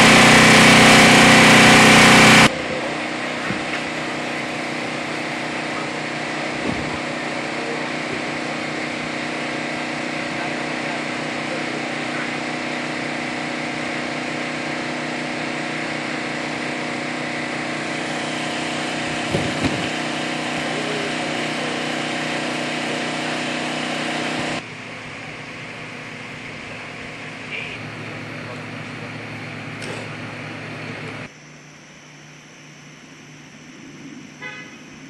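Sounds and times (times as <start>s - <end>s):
engine humming steadily: 0.0s - 35.0s.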